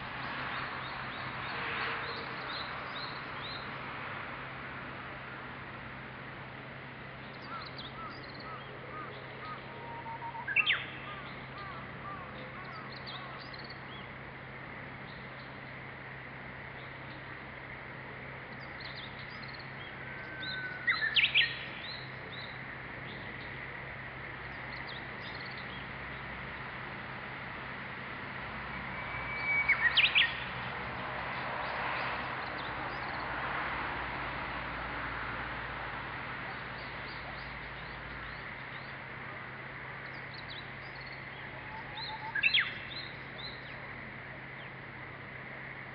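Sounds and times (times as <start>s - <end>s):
bird singing: 0.2s - 3.8s, 7.2s - 14.2s, 18.5s - 23.6s, 24.4s - 26.7s, 28.6s - 33.3s, 36.4s - 39.1s, 39.9s - 43.9s
faint bird calls: 7.4s - 13.9s, 40.4s - 43.8s.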